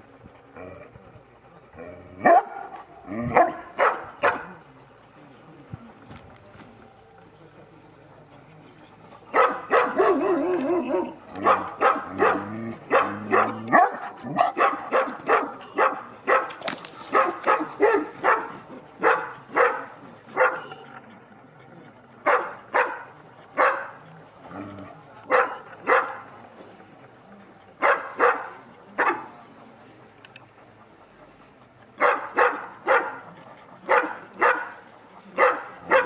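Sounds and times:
dog barking deeply: 2.2 - 4.6, 9.3 - 20.7, 22.2 - 24.7, 25.3 - 26.2, 27.8 - 29.3, 32.0 - 36.0.

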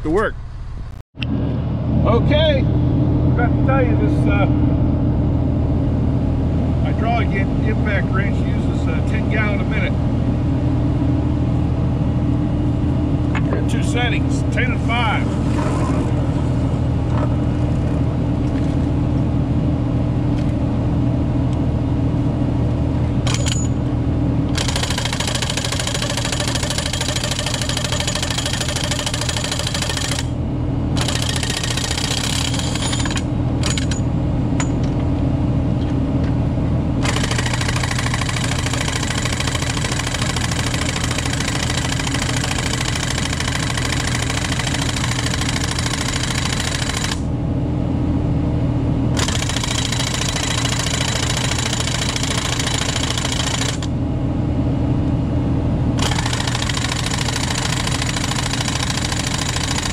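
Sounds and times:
truck engine droning: 0.0 - 20.9
hydraulic impact wrench hammering: 23.2 - 23.8, 24.5 - 30.4, 31.0 - 35.0, 37.0 - 47.2, 49.2 - 53.9, 56.0 - 59.9.

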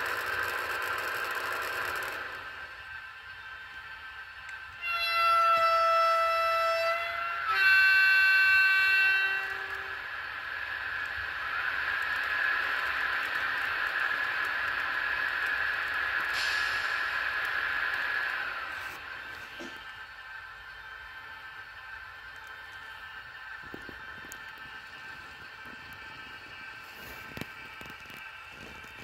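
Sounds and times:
steady hiss: 0.0 - 29.0
two-tone train horn: 4.8 - 10.1.

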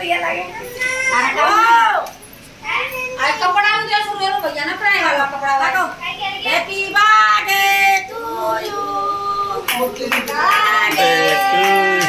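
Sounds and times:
children and women singing: 6.4 - 12.0.

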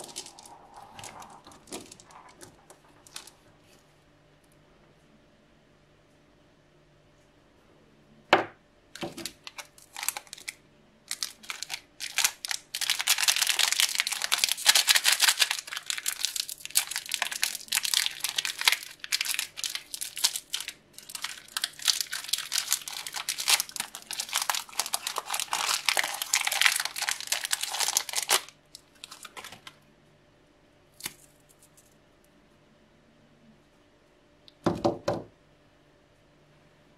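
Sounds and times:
plastic wrapper crinkling: 0.0 - 3.8, 9.0 - 29.8.

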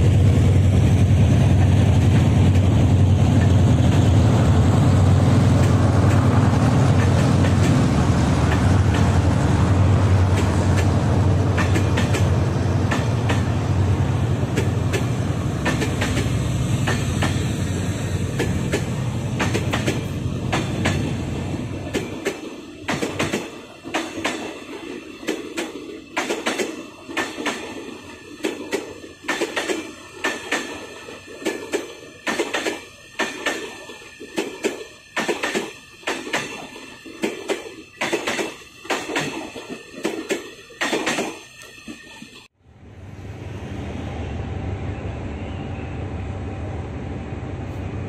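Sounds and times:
train wheels clacking over rail joints: 5.4 - 9.3, 10.3 - 13.6, 14.4 - 17.6, 18.2 - 42.4.

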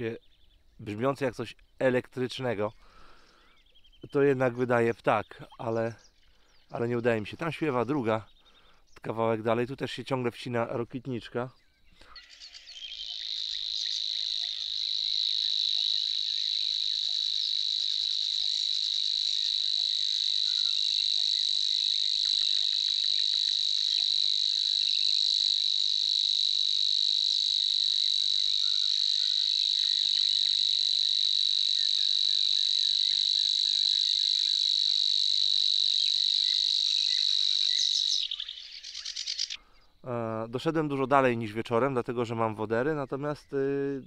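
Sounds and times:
faint birdsong: 0.0 - 35.2, 35.9 - 44.0
bird buzzing trill: 12.1 - 39.6.

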